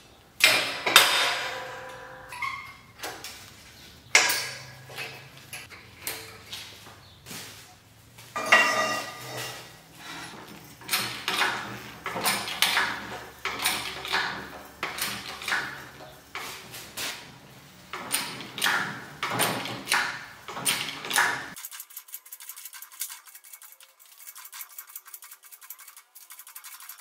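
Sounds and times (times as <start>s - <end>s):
hydraulic jack pump handle clanking: 0.4s - 3.2s, 4.1s - 6.4s, 10.3s - 16.7s, 17.9s - 21.6s
thin high fast rattle: 21.5s - 27.0s.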